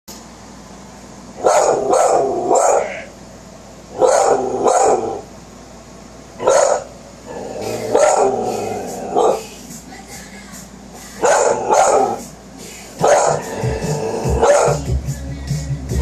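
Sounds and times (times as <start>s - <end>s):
dog barking: 1.4s - 3.1s, 4.0s - 5.2s, 6.4s - 7.0s, 7.8s - 9.5s, 11.2s - 12.2s, 13.0s - 13.6s, 14.4s - 14.9s.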